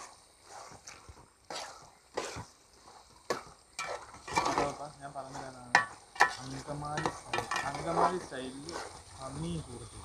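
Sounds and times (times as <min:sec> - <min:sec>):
ladle scraping pot: 0:00.0 - 0:09.2
ladle clanking against pot: 0:05.7 - 0:08.1.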